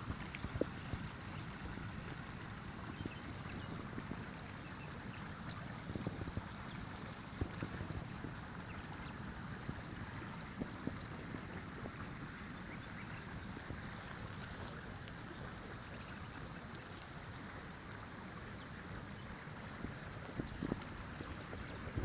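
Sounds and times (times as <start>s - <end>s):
brook water rushing: 0.0s - 22.0s
wind rumble on microphone: 0.0s - 22.0s.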